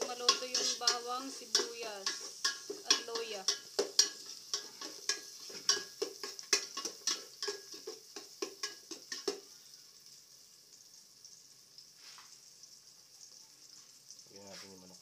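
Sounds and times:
utensil scraping pot: 0.0s - 9.5s
food sizzling in oil: 0.0s - 15.0s.

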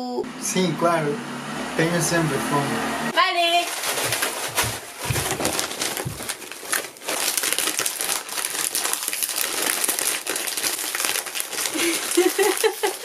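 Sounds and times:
plastic packaging crinkling: 3.4s - 13.0s.

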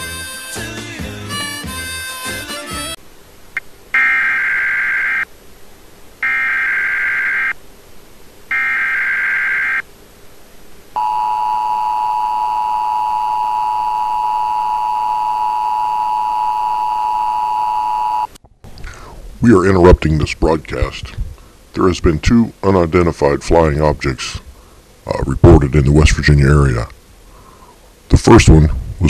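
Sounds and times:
music: 0.0s - 3.0s
buzzy digital alert bursts: 3.9s - 5.3s, 6.2s - 7.6s, 8.5s - 9.8s
two-tone attention signal: 11.0s - 18.3s.

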